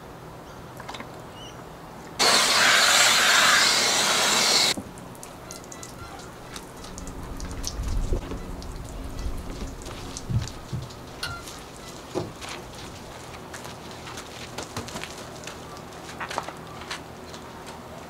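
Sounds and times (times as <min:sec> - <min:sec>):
water gushing from hose into bucket: 0:02.2 - 0:12.2.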